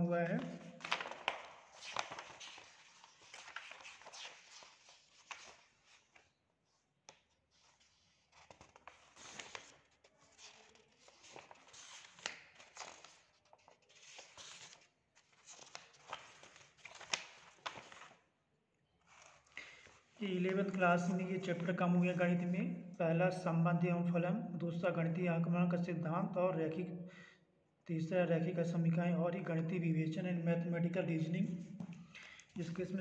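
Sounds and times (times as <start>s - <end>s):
paper pages being leafed through: 0.2s - 18.2s, 19.0s - 22.1s.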